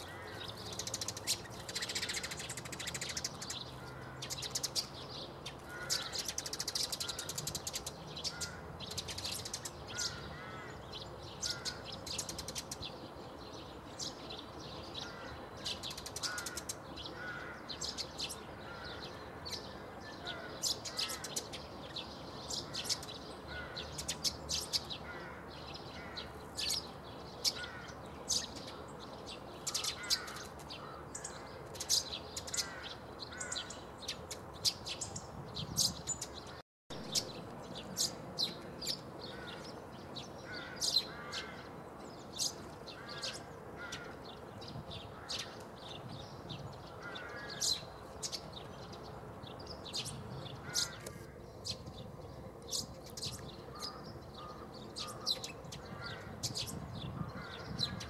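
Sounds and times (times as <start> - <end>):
sparrows chirping: 0.0 - 58.0.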